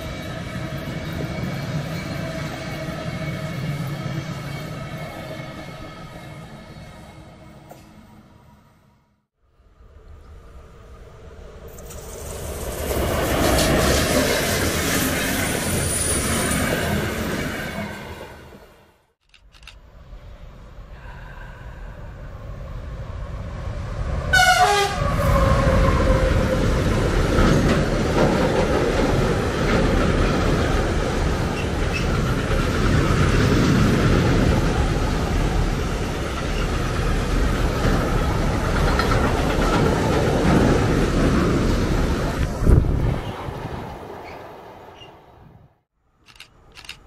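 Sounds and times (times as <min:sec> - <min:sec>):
train wheels rolling on rails: 0:11.2 - 0:18.4, 0:23.0 - 0:45.2
train horn blast: 0:24.3 - 0:26.8.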